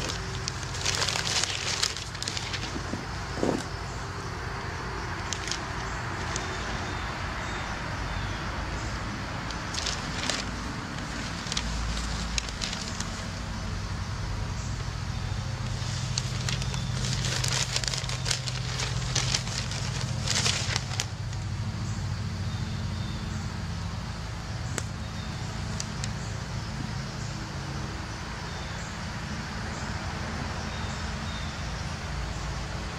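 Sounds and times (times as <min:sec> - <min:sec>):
newspaper pages rustling: 0:00.0 - 0:04.0, 0:05.2 - 0:06.9, 0:09.5 - 0:13.5, 0:15.4 - 0:21.4
road traffic rumble: 0:00.0 - 0:32.9.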